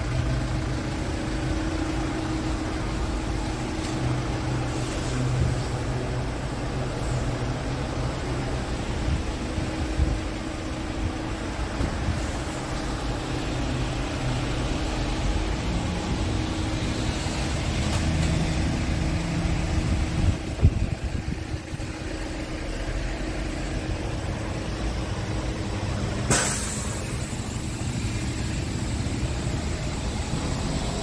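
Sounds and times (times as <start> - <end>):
diesel engine idling: 0.0 - 31.0
sharp hiss: 26.2 - 30.7.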